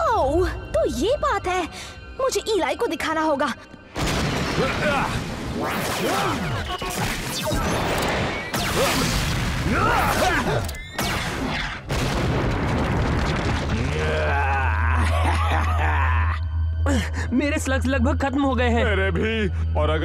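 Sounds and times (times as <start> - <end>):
dramatic background music: 0.0 - 20.0
cartoon booms and blasts: 4.0 - 14.0.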